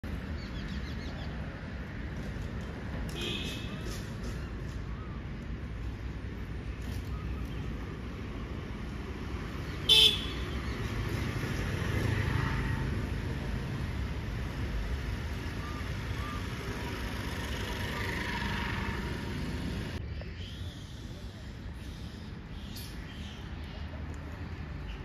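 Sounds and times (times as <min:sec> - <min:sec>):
road traffic rumble: 0:00.0 - 0:25.0
vehicle horn toot: 0:09.9 - 0:10.5.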